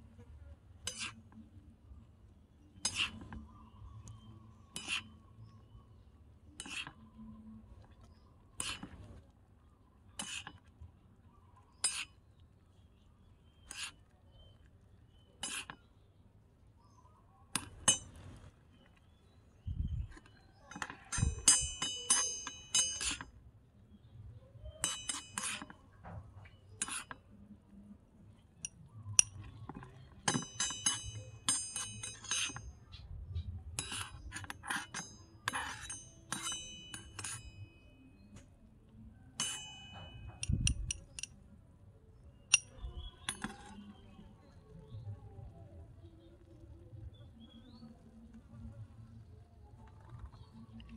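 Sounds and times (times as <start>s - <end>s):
metal spoon clinking on wok: 20.6s - 23.3s, 24.7s - 25.8s, 28.6s - 32.7s, 33.8s - 37.9s, 39.4s - 41.3s.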